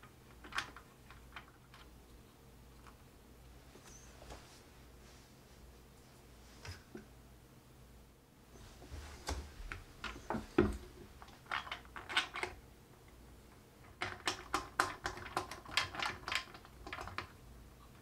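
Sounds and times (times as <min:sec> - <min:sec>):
plastic nut clicking and scraping: 0:13.8 - 0:17.3.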